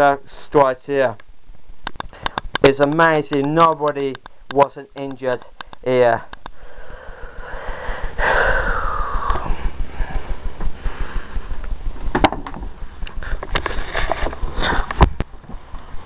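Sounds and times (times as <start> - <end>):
sharp knocks and clicks: 1.2 - 6.6, 11.6 - 15.6
camera handling rubbing: 13.0 - 15.4.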